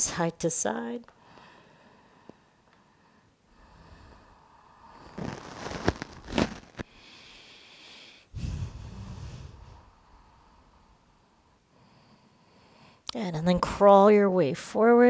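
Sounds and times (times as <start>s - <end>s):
person exhaling: 6.9s - 10.9s.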